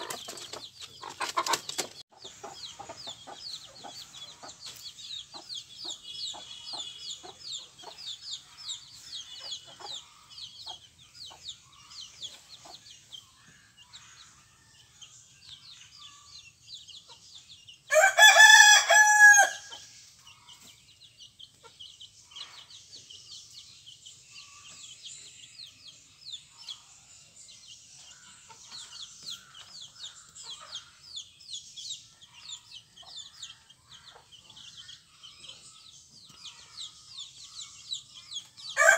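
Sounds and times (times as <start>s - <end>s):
hen clucking: 0.0s - 4.8s
chicks peeping: 0.0s - 38.9s
rooster crowing: 17.9s - 19.7s.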